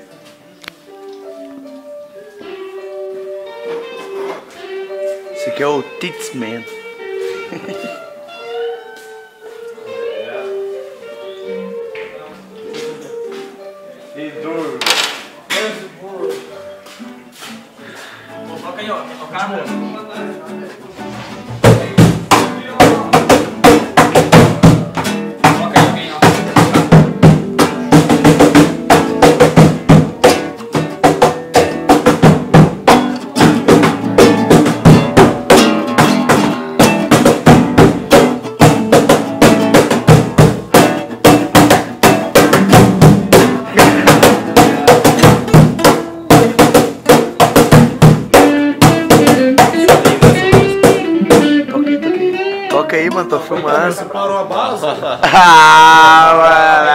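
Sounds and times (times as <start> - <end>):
acoustic guitar strumming: 1.9 - 13.9, 16.8 - 54.1
cajon beat: 3.6 - 8.6, 14.7 - 15.7, 19.4 - 53.6, 55.2 - 56.9.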